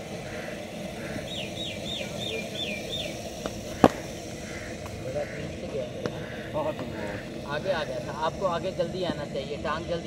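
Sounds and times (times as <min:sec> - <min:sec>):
bird chirping: 0:00.0 - 0:08.0
bat striking ball: 0:03.4 - 0:04.2.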